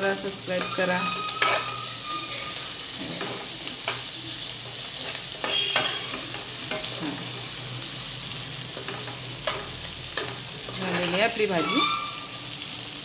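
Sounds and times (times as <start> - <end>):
okra sizzling in a pan: 0.0 - 13.0
spatula scraping and tapping pan: 0.5 - 7.4, 8.7 - 12.2.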